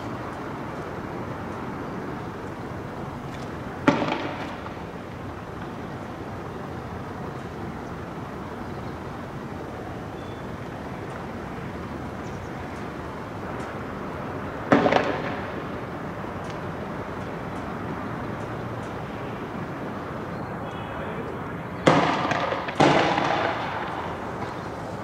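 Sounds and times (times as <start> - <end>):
low street background noise: 0.0 - 25.0
loud bang with echo: 21.8 - 24.0.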